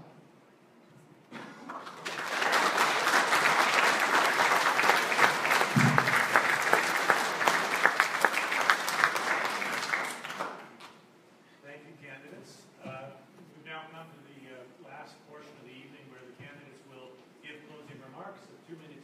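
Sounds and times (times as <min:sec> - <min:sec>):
audience applauding: 0:01.6 - 0:10.9.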